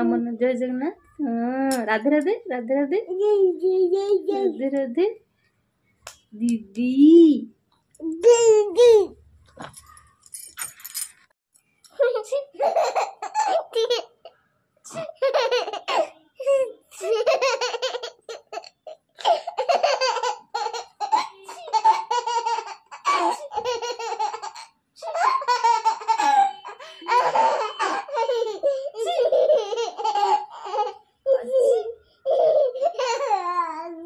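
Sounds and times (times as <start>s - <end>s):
baby giggling: 3.2s - 4.6s, 12.6s - 34.0s.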